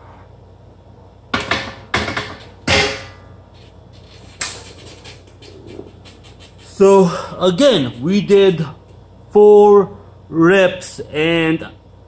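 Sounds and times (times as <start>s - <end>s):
barbell plates knocking: 1.4s - 3.2s.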